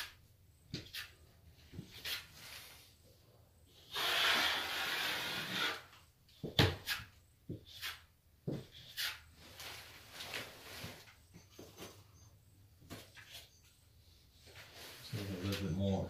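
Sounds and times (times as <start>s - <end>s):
knife scraping plaster: 3.8s - 5.9s, 6.8s - 9.3s.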